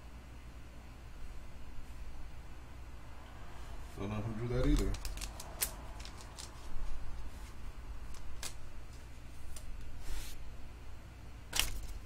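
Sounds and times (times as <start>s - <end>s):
faint low hum: 0.0s - 12.0s
plastic card sleeve rustling: 4.5s - 10.3s.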